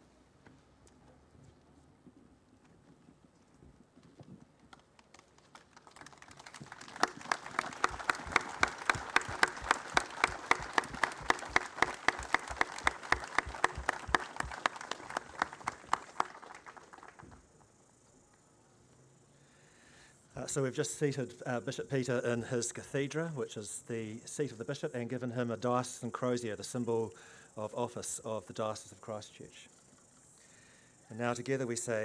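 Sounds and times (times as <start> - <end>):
sharp evenly spaced claps: 4.7 - 17.5
crowd applauding: 5.0 - 17.5.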